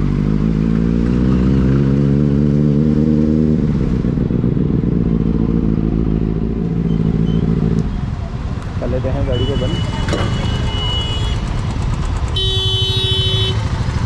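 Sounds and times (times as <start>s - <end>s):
motorcycle engine running: 10.5s - 14.0s.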